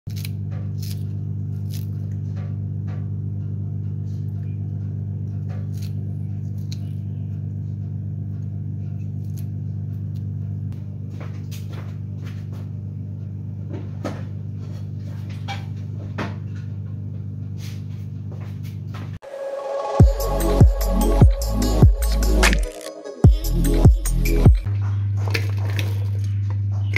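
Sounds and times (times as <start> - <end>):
low hum: 19.2 - 26.9.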